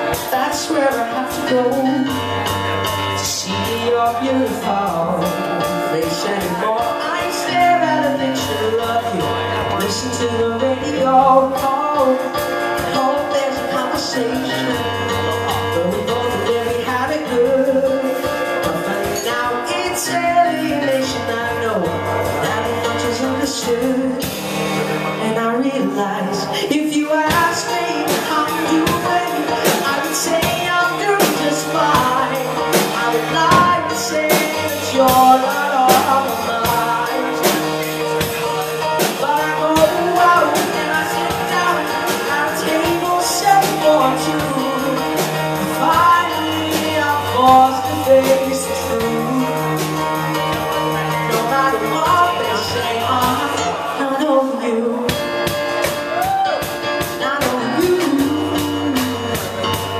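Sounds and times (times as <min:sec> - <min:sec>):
live pop-rock band: 0:00.0 - 0:59.9
man singing into a microphone: 0:00.0 - 0:59.9
drum hits: 0:27.3 - 0:53.9.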